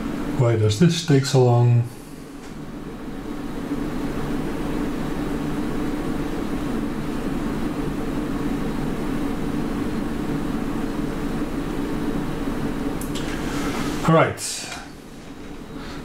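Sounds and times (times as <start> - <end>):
mechanical whirring hum: 0.0 - 16.0.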